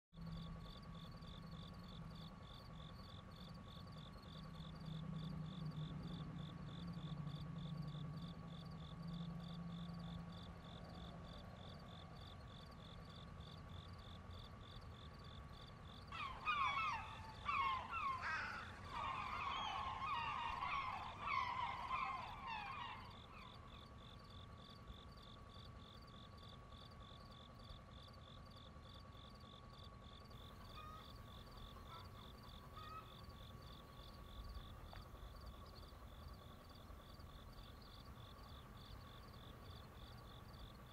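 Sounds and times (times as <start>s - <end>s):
insects chirping: 0.2s - 40.9s
steady insect tone: 0.2s - 40.9s
bird calls: 16.0s - 24.2s, 30.4s - 40.9s.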